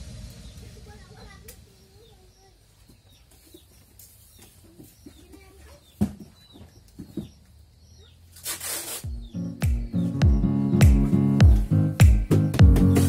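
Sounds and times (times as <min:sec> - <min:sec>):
small birds chirping: 0:00.0 - 0:13.0
chickens clucking: 0:00.3 - 0:08.3
brief hiss: 0:08.3 - 0:09.1.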